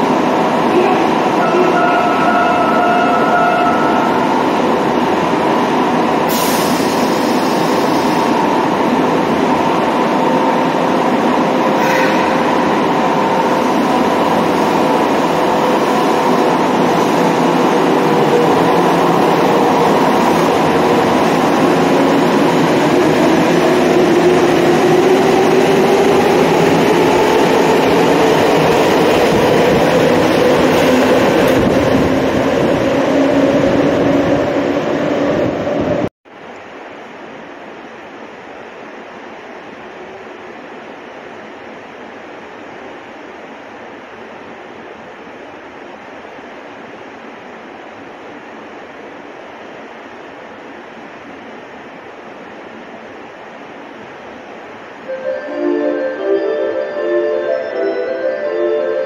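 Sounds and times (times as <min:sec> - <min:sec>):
subway train rumbling: 0:00.0 - 0:59.0.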